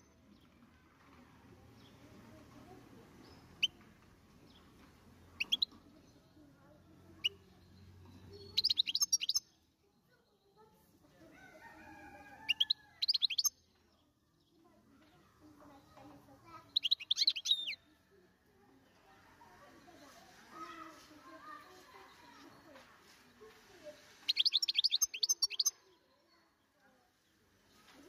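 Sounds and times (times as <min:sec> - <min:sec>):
goldfinch chirps: 0:05.4 - 0:05.8, 0:07.2 - 0:09.5, 0:12.4 - 0:13.6, 0:16.6 - 0:17.8, 0:23.6 - 0:25.8
high rapid bird twittering: 0:05.4 - 0:05.8, 0:08.3 - 0:09.5, 0:12.4 - 0:13.5, 0:16.5 - 0:17.8, 0:24.2 - 0:25.7.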